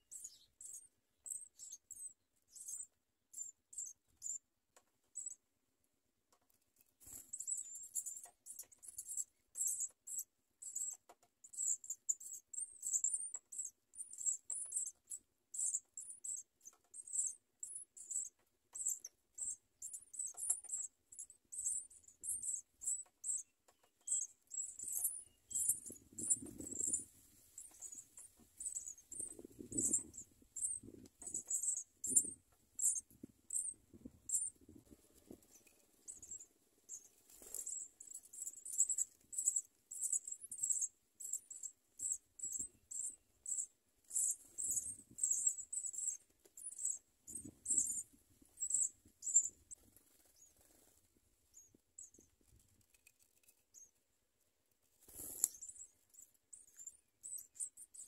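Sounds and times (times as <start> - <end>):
nestlings begging cheeps: 24.0 - 34.7, 36.1 - 49.6.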